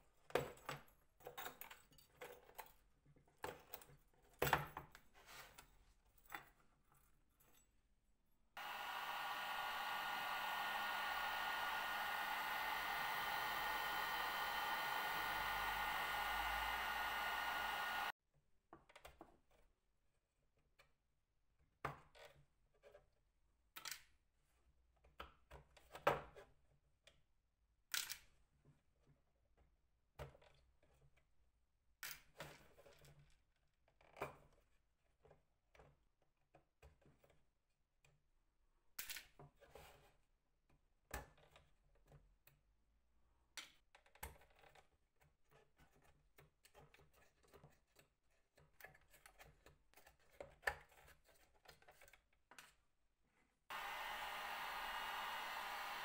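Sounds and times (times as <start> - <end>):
soft rustling and scraping: 5.0 - 7.7.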